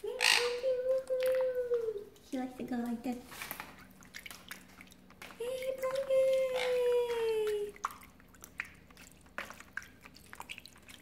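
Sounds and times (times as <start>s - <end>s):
water splashing and dripping: 0.6s - 11.0s
bird flapping in water: 3.3s - 11.0s.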